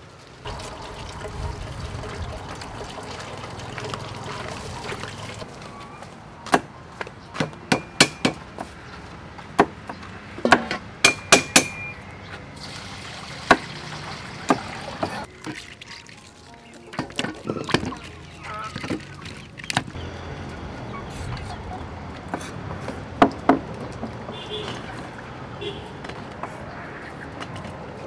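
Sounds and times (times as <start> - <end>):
water poured into steel basin: 0.5 - 5.5, 12.6 - 19.7.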